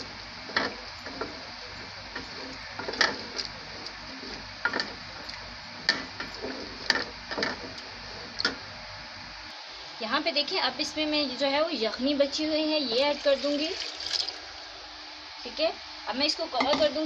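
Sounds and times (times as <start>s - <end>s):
wooden spoon scraping metal pot: 0.5s - 5.3s, 5.9s - 8.4s.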